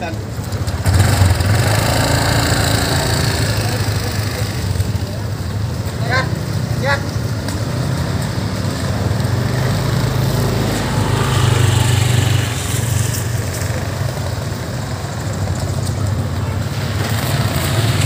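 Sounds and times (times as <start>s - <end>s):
motorcycle engines nearby: 0.0s - 18.0s
motor scooter engine running: 0.6s - 5.1s.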